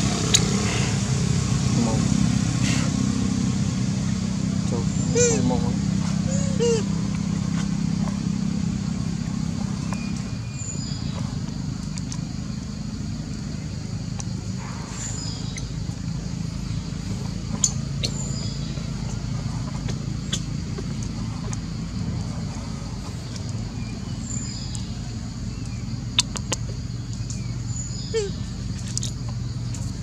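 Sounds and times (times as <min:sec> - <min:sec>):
low engine hum: 0:00.0 - 0:30.0.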